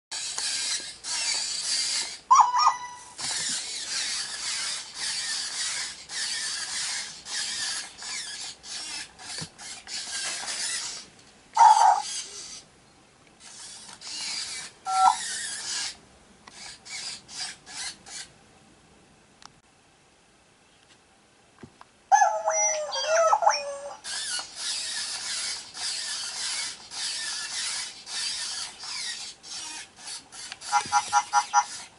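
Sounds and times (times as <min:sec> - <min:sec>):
servo motors whirring: 0:00.1 - 0:12.7, 0:13.4 - 0:18.3, 0:24.0 - 0:31.9
electronic toy yips: 0:00.2 - 0:11.0, 0:11.6 - 0:12.6, 0:13.4 - 0:16.0, 0:22.1 - 0:31.9.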